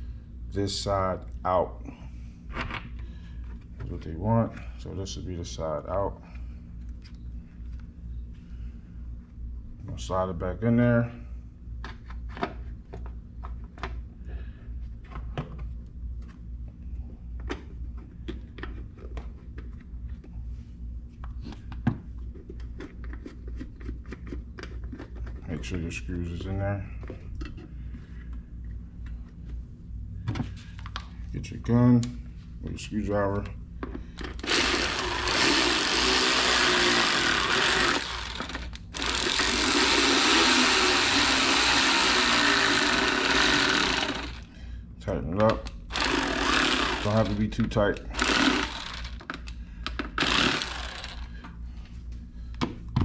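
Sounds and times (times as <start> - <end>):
steady low hum: 0.0 - 53.0
air ratchet hissing and buzzing: 34.2 - 44.5, 45.9 - 47.4, 48.1 - 49.2, 50.1 - 51.4.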